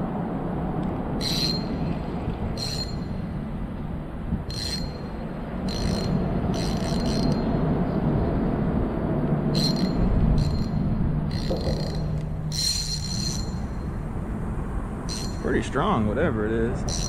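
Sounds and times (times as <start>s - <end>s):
traffic rumble on bridge: 0.0s - 17.0s.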